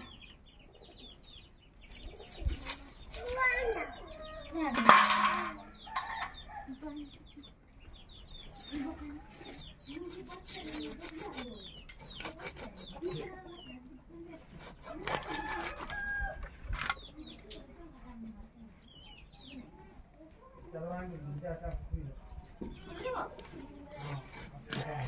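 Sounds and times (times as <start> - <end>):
knife scraping fish scales: 2.2 - 3.3, 9.8 - 13.4, 14.3 - 16.1, 23.4 - 25.0.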